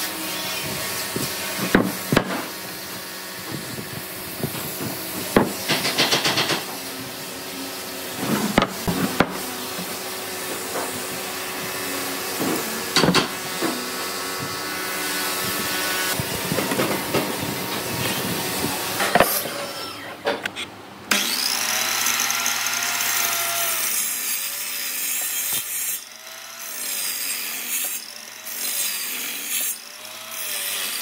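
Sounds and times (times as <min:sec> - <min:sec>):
tools knocking on wooden workbench: 0:04.4 - 0:06.7, 0:12.4 - 0:13.8.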